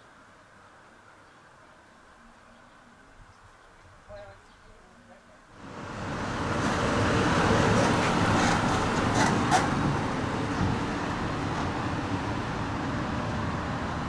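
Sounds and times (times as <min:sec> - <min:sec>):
car road and engine noise: 0:05.5 - 0:14.0.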